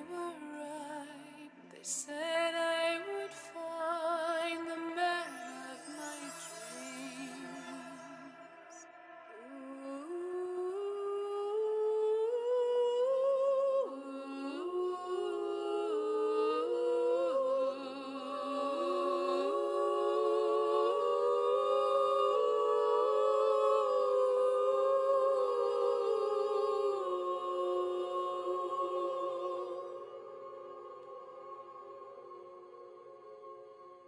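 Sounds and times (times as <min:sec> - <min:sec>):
wordless vocal harmonies: 0:00.0 - 0:34.0.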